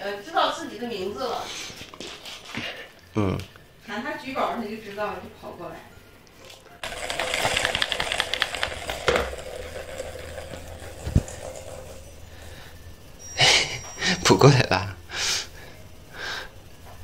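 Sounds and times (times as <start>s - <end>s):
plastic balls rattling on track: 6.4s - 13.2s.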